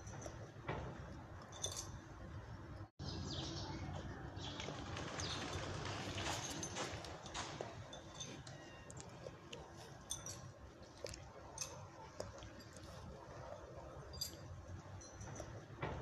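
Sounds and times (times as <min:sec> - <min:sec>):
dry leaves rustling and crackling: 0:04.4 - 0:07.7
faint clicks and crunches: 0:04.5 - 0:13.4.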